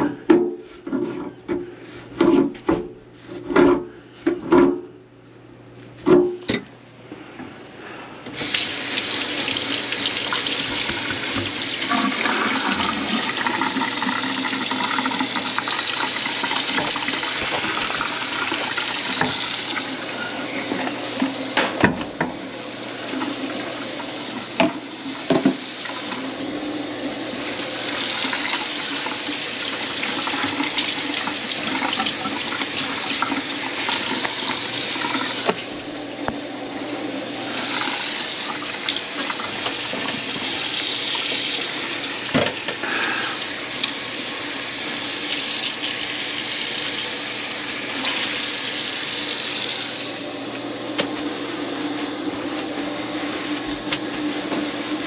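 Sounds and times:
water running into a sink: 8.4 - 50.3.

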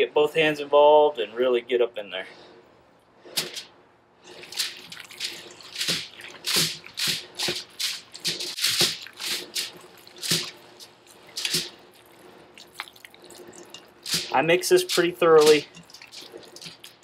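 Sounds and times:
hands squelching raw meat: 4.3 - 17.0.

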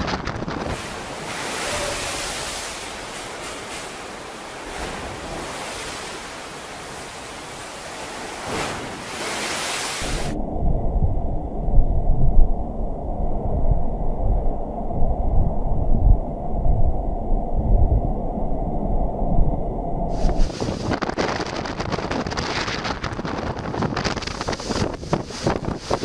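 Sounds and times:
heavy surf crashing: 0.0 - 10.4, 20.1 - 26.0
muffled wind and water rumble: 0.0 - 26.0
wind: 0.0 - 26.0.

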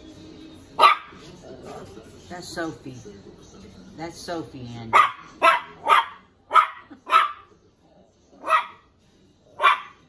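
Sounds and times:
puppy barking: 0.8 - 1.2, 4.9 - 7.5, 8.4 - 8.9, 9.6 - 10.0.

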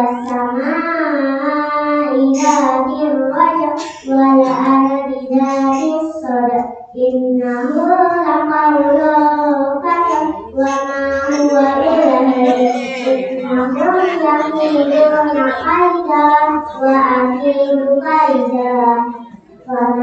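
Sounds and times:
child singing: 0.0 - 20.0.

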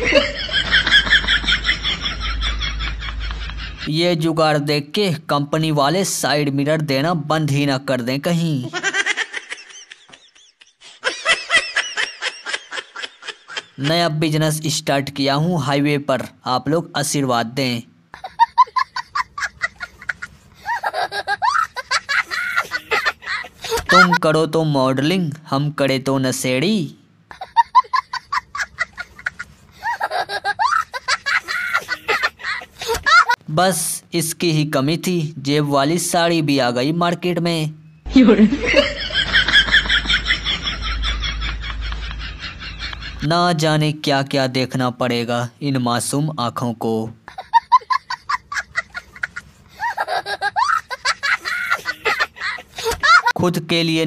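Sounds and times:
wavering laughing: 0.0 - 3.9, 8.7 - 13.9, 18.1 - 24.2, 27.3 - 33.4, 38.1 - 43.2, 47.3 - 53.4.

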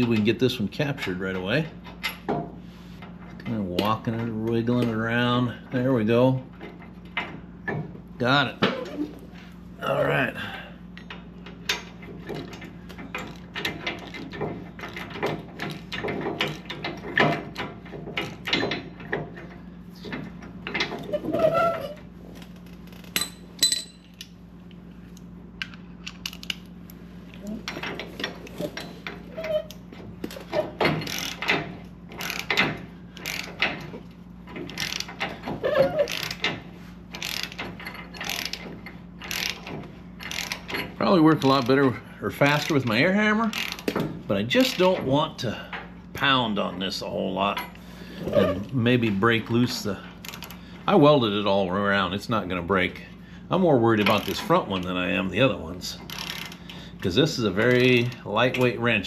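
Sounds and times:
ratchet wrench clicking: 31.0 - 33.8, 34.6 - 35.3, 36.1 - 36.5, 37.1 - 38.6, 39.2 - 40.8, 43.5 - 44.0, 56.1 - 56.7.

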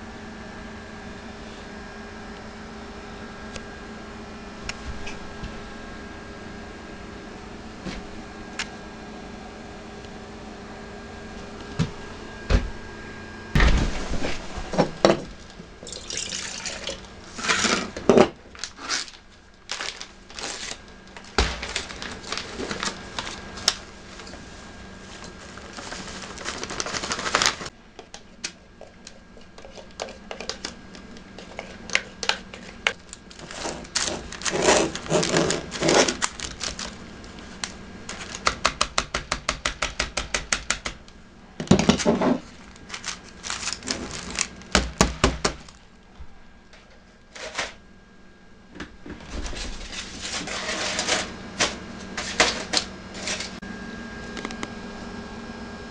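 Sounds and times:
dry mix pouring: 15.8 - 17.4
plastic spoon stirring batter: 28.8 - 35.9
pouch rustling: 42.6 - 44.6.

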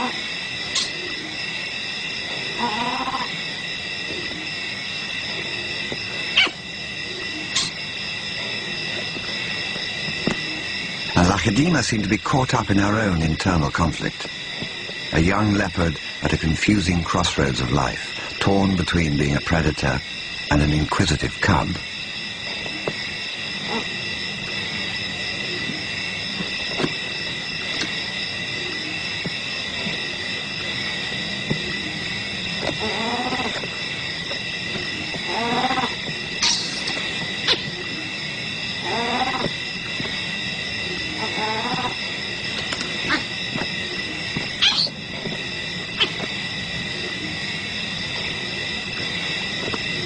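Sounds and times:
night insects chorus: 0.0 - 50.0
leopard pulsing growl: 34.6 - 36.4.

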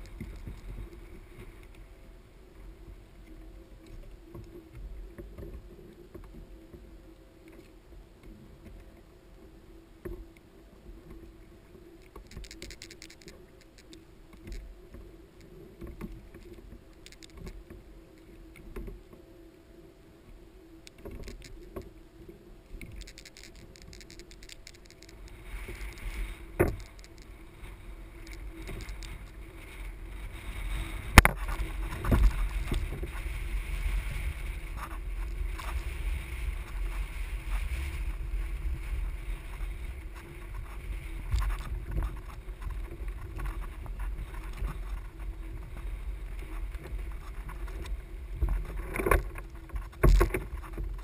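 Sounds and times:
wind rumbling on microphone: 0.0 - 51.0.

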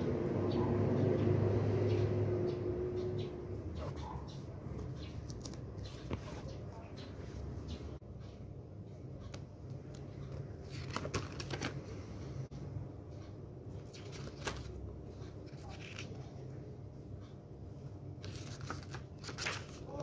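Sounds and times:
steady low hum: 0.0 - 20.0
paper pages rustling: 4.7 - 6.6, 9.9 - 12.2, 13.8 - 16.5, 18.2 - 20.0.

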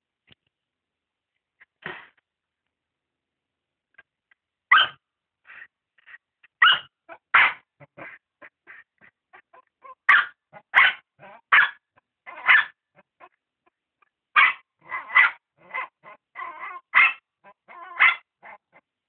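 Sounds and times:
dog barking: 4.7 - 5.0, 6.6 - 13.4, 14.4 - 18.8.

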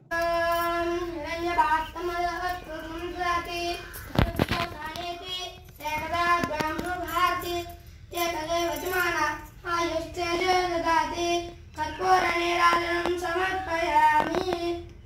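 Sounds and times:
person singing devotional song: 0.0 - 15.0.

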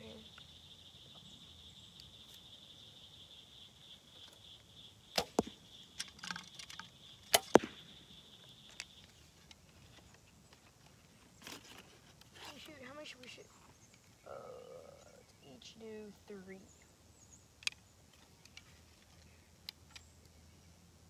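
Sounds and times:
arrow striking target: 5.1 - 5.6, 7.3 - 7.9
bow release snap: 5.1 - 6.1, 7.3 - 7.9.

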